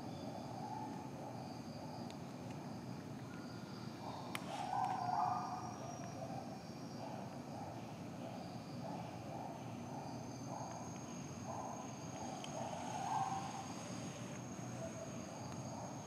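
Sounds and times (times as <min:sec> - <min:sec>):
faint insect chirping: 0:00.0 - 0:16.0.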